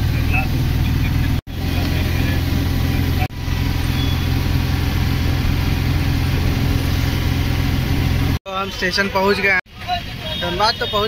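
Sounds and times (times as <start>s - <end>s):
bus engine running: 0.0s - 8.4s.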